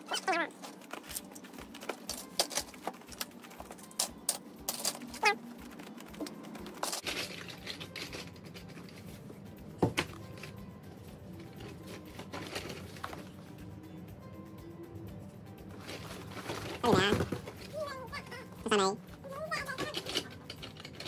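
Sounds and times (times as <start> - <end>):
plastic toys clattering: 0.0 - 9.2, 11.4 - 13.4, 15.7 - 17.9, 19.4 - 21.0.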